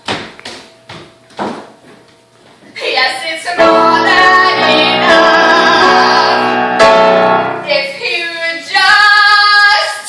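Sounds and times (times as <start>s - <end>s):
piano accompaniment: 3.6s - 8.1s.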